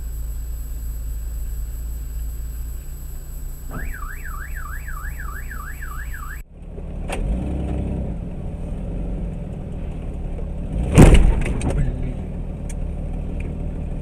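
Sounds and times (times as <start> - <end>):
electronic alarm tone warbling: 0.0 - 6.4
car driving hum from inside: 0.0 - 14.0.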